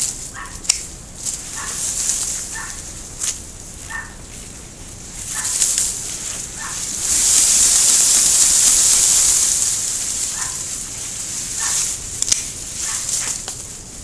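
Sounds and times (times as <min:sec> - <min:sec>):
branches and foliage rustling: 0:00.0 - 0:14.0
pruning shears snipping: 0:00.0 - 0:14.0
faint high animal calls: 0:00.3 - 0:00.7, 0:01.5 - 0:01.9, 0:02.5 - 0:02.9, 0:03.8 - 0:04.3, 0:06.5 - 0:06.9, 0:11.6 - 0:12.0, 0:12.8 - 0:13.4.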